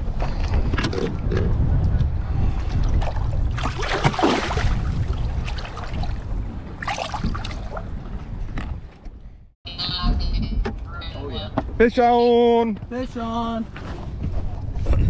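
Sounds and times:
wind rumbling on microphone: 0:00.0 - 0:11.8, 0:12.7 - 0:15.0
water splashing and sloshing: 0:02.3 - 0:09.2.

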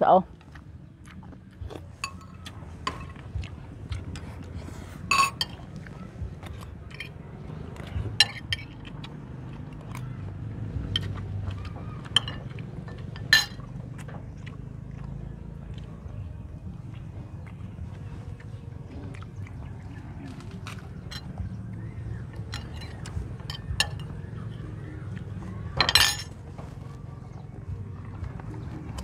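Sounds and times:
spoons clinking on ceramic bowls: 0:02.0 - 0:03.2, 0:05.1 - 0:05.7, 0:06.9 - 0:07.2, 0:08.2 - 0:08.8, 0:12.1 - 0:13.6, 0:21.1 - 0:21.4, 0:22.4 - 0:24.2, 0:25.8 - 0:26.4.

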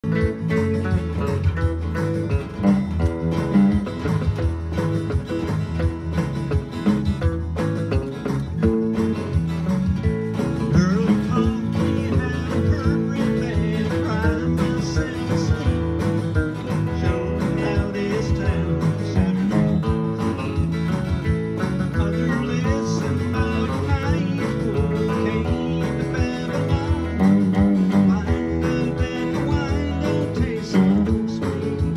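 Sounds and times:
guitars strumming country song: 0:00.0 - 0:31.9
man singing: 0:10.6 - 0:31.9.

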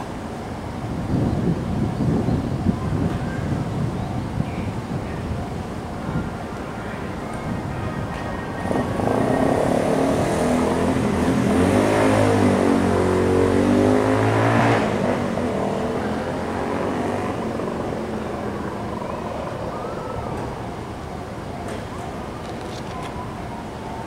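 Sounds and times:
electric train passing: 0:15.0 - 0:24.0.

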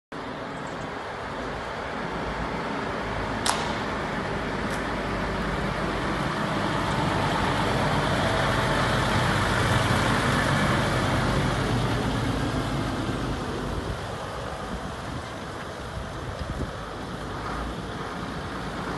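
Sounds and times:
diesel lorry driving past: 0:01.2 - 0:18.9
sharp click: 0:03.4 - 0:03.9.

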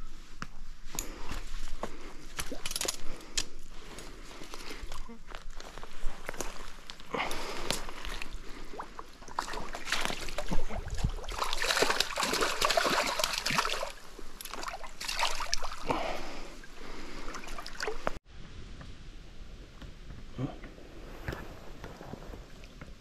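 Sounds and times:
fish splashing in stream: 0:08.7 - 0:15.9.

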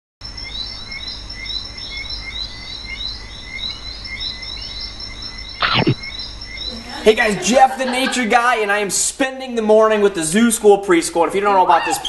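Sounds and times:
short rising animal chirps: 0:05.6 - 0:06.1.

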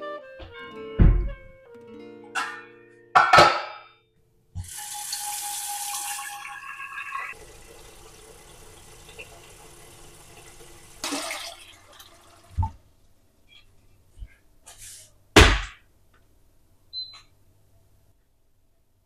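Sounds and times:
tap water pouring into pot: 0:04.6 - 0:12.8.

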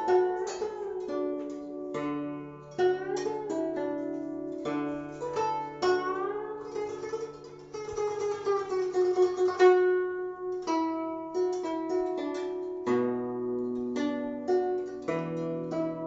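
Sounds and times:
zither plucked solo: 0:00.0 - 0:16.0.

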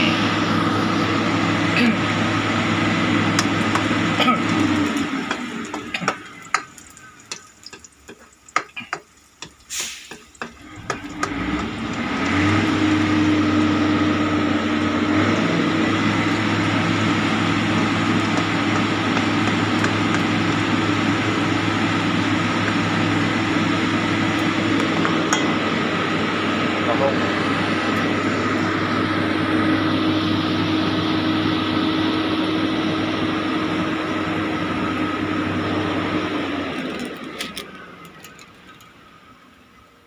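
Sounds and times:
mechanical hum with low drone: 0:00.0 - 0:09.7, 0:10.4 - 0:40.0
garlic frying in oil: 0:02.5 - 0:26.6.

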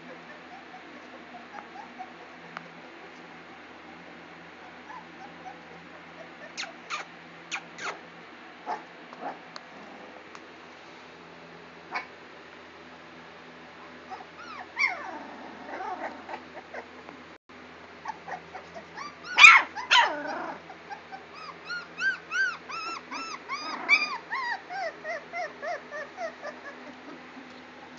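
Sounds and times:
puppies whimpering and yelping: 0:00.0 - 0:04.0, 0:04.6 - 0:08.0, 0:14.1 - 0:17.0, 0:18.0 - 0:27.9.

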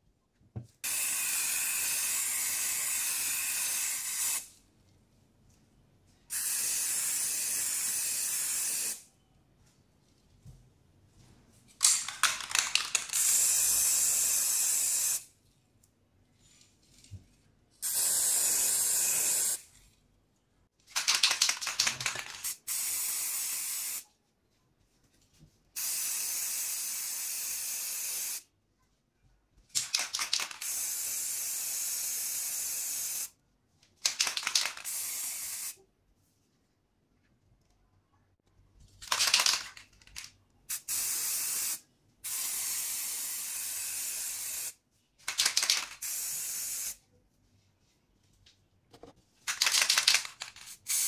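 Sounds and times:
spray paint can hissing: 0:00.8 - 0:04.5, 0:06.3 - 0:09.0, 0:12.2 - 0:15.3, 0:17.8 - 0:19.6, 0:21.0 - 0:24.0, 0:25.8 - 0:28.4, 0:29.8 - 0:33.3, 0:34.0 - 0:35.8, 0:40.7 - 0:47.0, 0:49.6 - 0:51.0.

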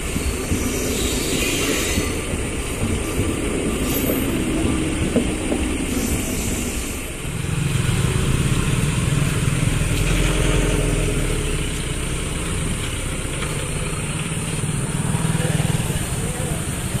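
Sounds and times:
steady engine hum: 0:07.0 - 0:17.0
truck engine: 0:07.1 - 0:17.0
motorcycle engines pulling away: 0:07.4 - 0:17.0.

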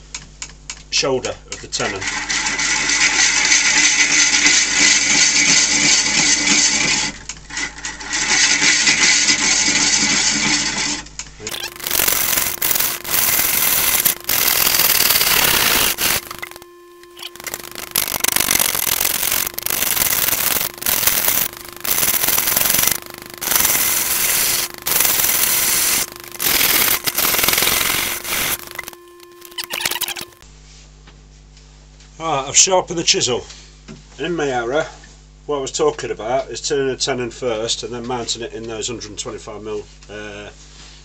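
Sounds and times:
lathe motor hum: 0:11.5 - 0:30.4.

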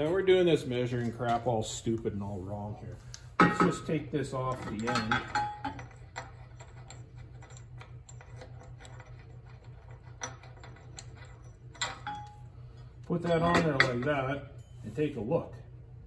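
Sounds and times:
steady low hum: 0:00.0 - 0:16.0
metal parts clicking and clinking: 0:03.4 - 0:14.3.

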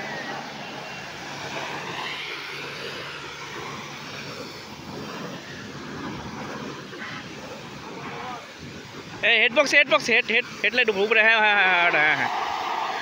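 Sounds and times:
pressure washer spray hissing: 0:00.0 - 0:09.2
washer pump motor humming: 0:00.0 - 0:13.0.

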